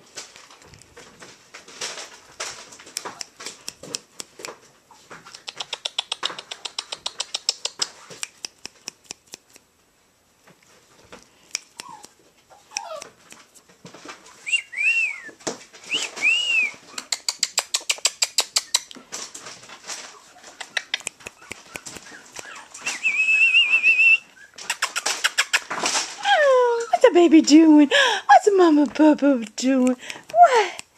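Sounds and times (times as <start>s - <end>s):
sharp clicking kissing noises: 3.0s - 4.6s, 5.2s - 9.7s, 11.4s - 13.6s, 15.9s - 19.0s, 20.4s - 25.7s, 29.4s - 30.9s
puppy squeaks: 11.7s - 13.2s, 16.1s - 18.9s, 20.1s - 25.7s.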